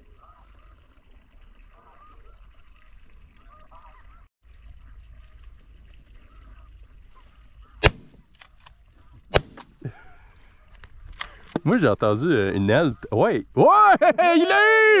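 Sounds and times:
geese calling: 0:00.0 - 0:01.0, 0:01.6 - 0:04.3, 0:06.0 - 0:07.9
shotgun blast: 0:07.8 - 0:08.2, 0:09.3 - 0:09.8
faint sharp cracks: 0:07.8 - 0:09.9.

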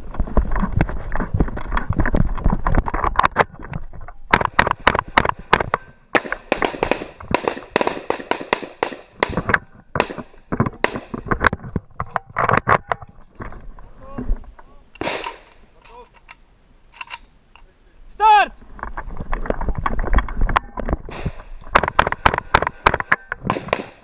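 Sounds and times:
rapid gunshots: 0:04.4 - 0:11.2, 0:21.1 - 0:24.0.

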